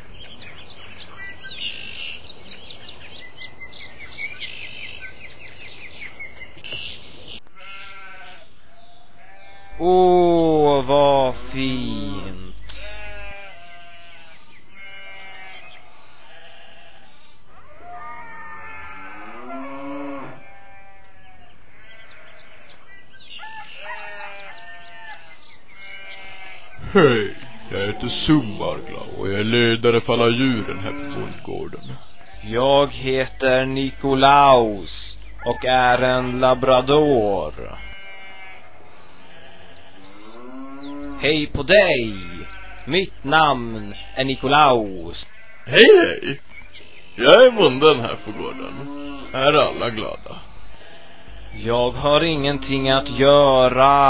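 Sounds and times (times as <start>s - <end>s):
small birds chirping: 0.0s - 17.9s, 19.1s - 54.0s
wavering bleat: 7.5s - 8.5s, 9.2s - 17.1s, 17.7s - 22.8s, 23.9s - 29.3s, 30.2s - 46.4s, 47.2s - 54.0s
rooster crowing: 23.4s - 25.2s.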